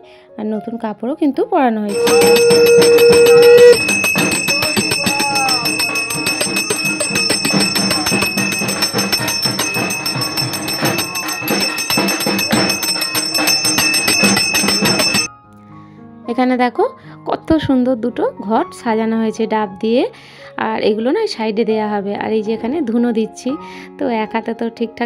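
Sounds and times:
conch shell blown: 1.9s - 6.0s
bells clanging: 1.9s - 15.3s.

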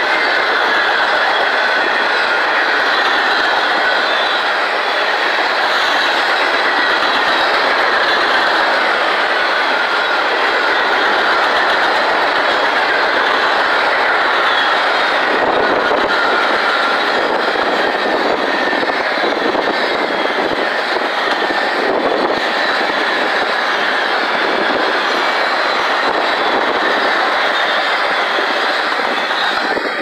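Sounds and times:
steel train wheels on rails: 0.0s - 30.0s.

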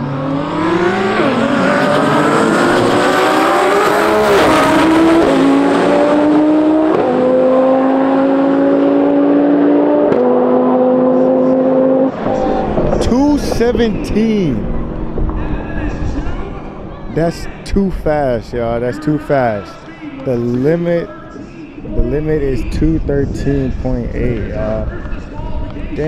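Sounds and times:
race car engine accelerating: 0.0s - 18.9s.

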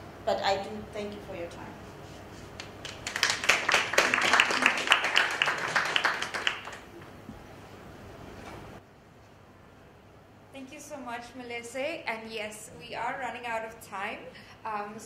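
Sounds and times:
audience applauding: 2.6s - 7.0s.

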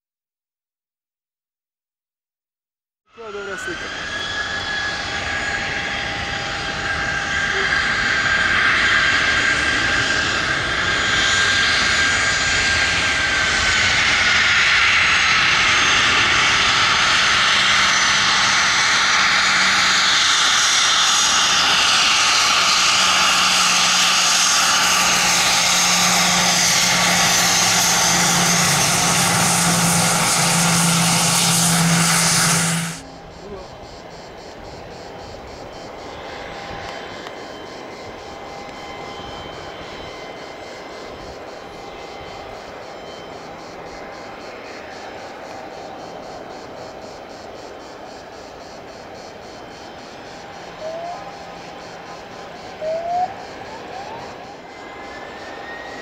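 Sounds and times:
whistling turbine whine: 3.1s - 56.0s
jet engine roar: 3.2s - 56.0s.

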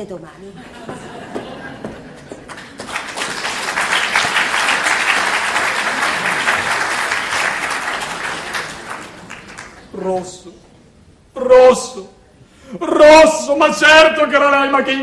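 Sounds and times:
audience applauding: 1.1s - 10.0s.

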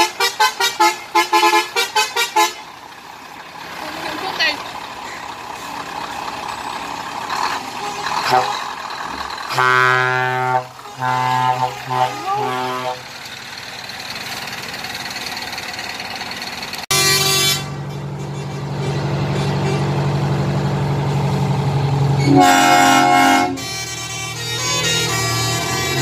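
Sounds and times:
truck air horn blasts: 0.0s - 2.7s, 7.7s - 8.8s, 9.4s - 13.2s, 16.9s - 20.3s, 22.1s - 26.0s
truck diesel engines passing: 0.0s - 26.0s.

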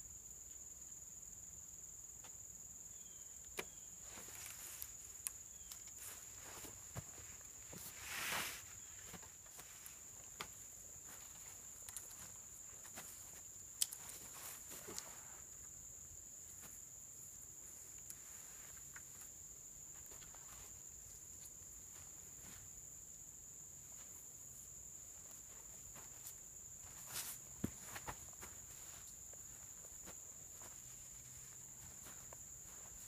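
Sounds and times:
insects droning: 0.0s - 33.0s
footsteps on forest floor: 5.6s - 15.3s, 25.2s - 33.0s.

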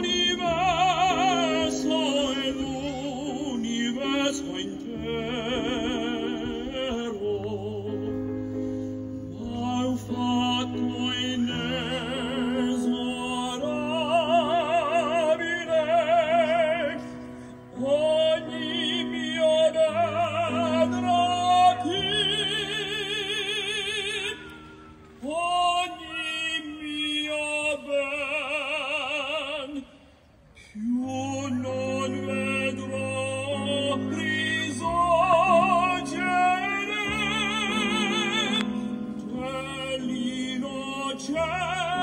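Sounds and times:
choir singing through speakers: 0.0s - 8.3s.

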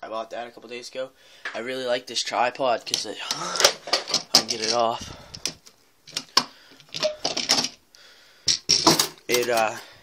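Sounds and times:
camera and tripod rattling: 3.0s - 7.8s.

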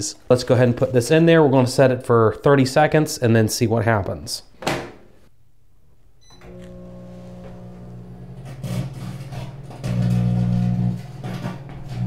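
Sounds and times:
microwave oven beep: 6.2s - 8.9s
microwave oven humming: 6.2s - 12.0s.

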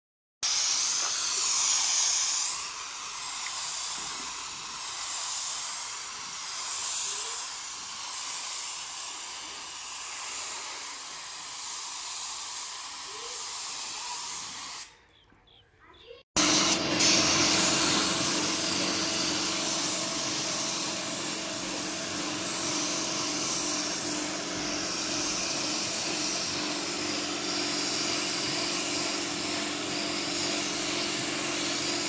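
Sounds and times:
paint spray gun hissing: 0.4s - 15.0s, 16.4s - 32.0s.

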